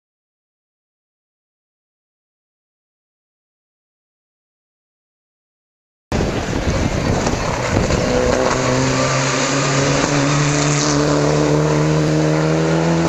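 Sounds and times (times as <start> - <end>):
rally car engine driving past: 6.2 - 13.0.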